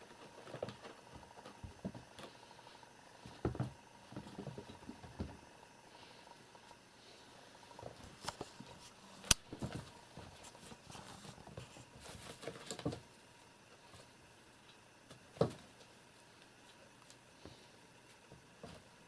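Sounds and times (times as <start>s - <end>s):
kittens scampering and pouncing: 0.0s - 5.5s.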